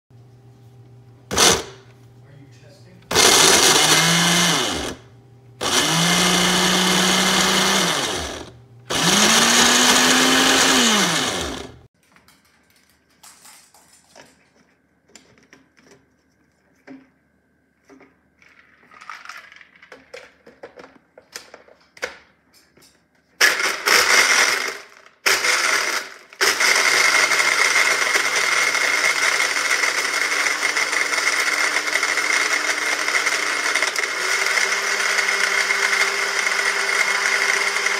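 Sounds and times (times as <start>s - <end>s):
blender motor pulsing: 1.3s - 1.8s, 3.1s - 11.9s, 23.6s - 37.9s.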